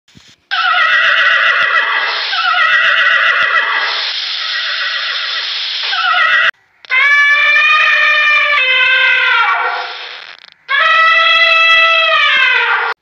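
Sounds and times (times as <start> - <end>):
horse whinnying: 0.5 - 13.0.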